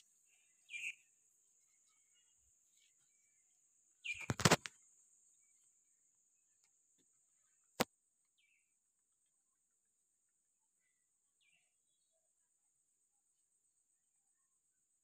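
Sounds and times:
insects droning: 0.0 - 9.3
crackling and clicks: 4.1 - 4.7.

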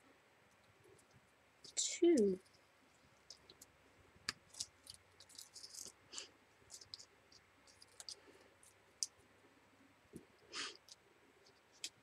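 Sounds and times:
paper crinkling: 4.5 - 6.0.

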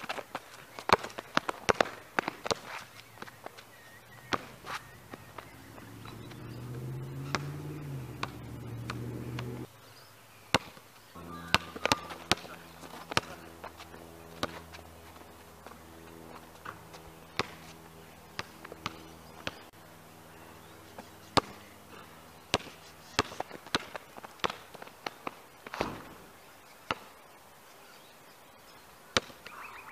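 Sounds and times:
shoes scuffing: 0.0 - 5.5
basketball bouncing on asphalt: 0.0 - 9.7, 10.5 - 19.7, 21.0 - 27.1, 29.2 - 29.6.

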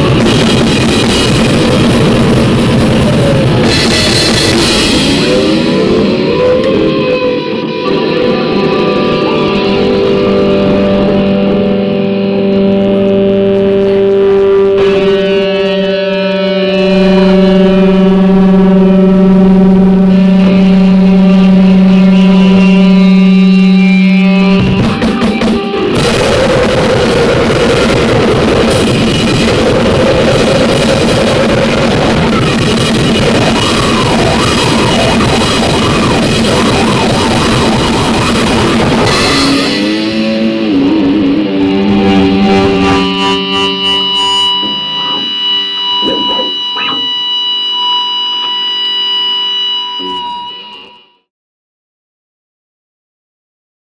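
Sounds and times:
harsh noise music: 0.0 - 51.2.

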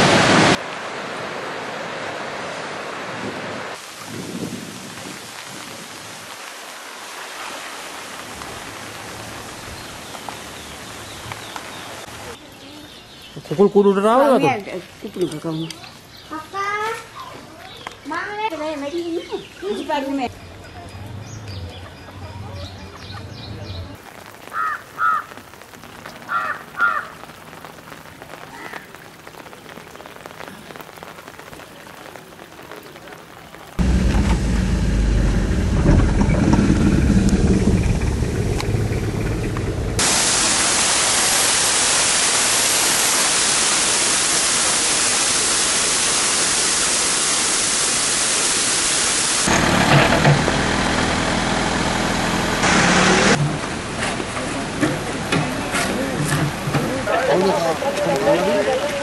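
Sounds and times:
flooded river rushing: 0.0 - 12.4, 24.0 - 59.0
crow cawing: 24.5 - 25.4, 26.3 - 27.2
steady hiss: 37.2 - 49.5.

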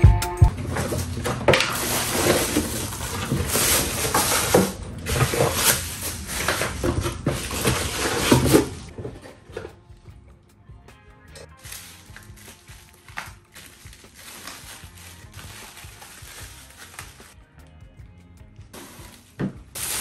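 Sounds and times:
rustling: 0.5 - 9.3, 11.6 - 17.4.

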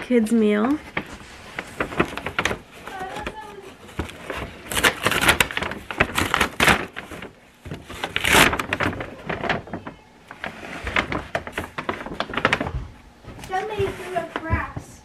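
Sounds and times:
paper bag rustling and crinkling: 0.1 - 15.0.

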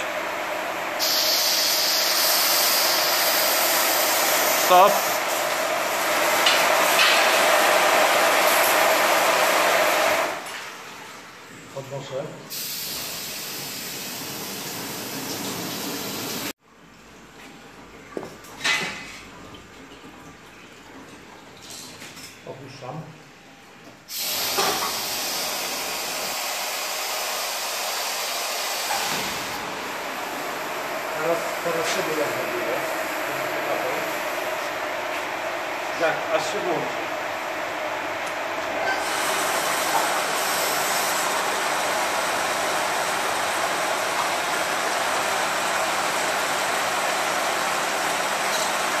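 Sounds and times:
liquid jets spraying in tank: 0.0 - 10.4, 12.5 - 16.5, 24.1 - 34.8, 38.3 - 49.0
parts washer rushing hiss: 0.0 - 10.4, 12.5 - 16.6, 24.1 - 49.0.

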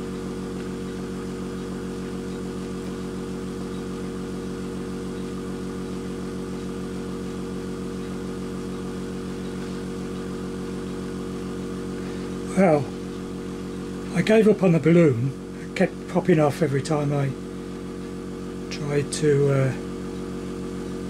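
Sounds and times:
air compressor running: 0.0 - 21.0.

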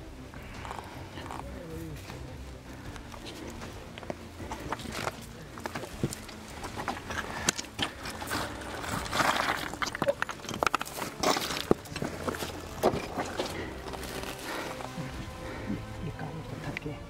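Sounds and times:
boots scraping over rock: 0.4 - 15.7
stones clinking together: 2.9 - 15.0.

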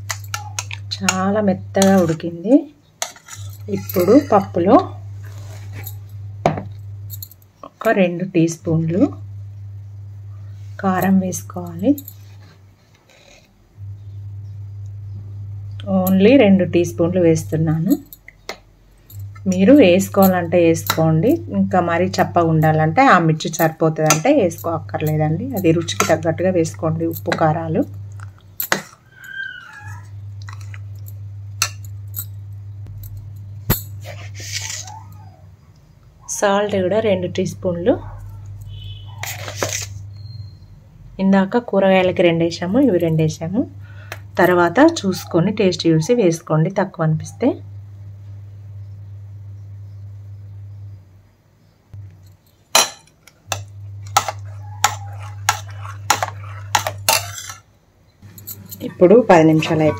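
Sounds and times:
low hum: 3.3 - 12.6, 13.6 - 45.7, 47.2 - 51.3, 51.9 - 59.9
spoon clinking on metal pot: 23.6 - 27.6, 52.7 - 57.6.

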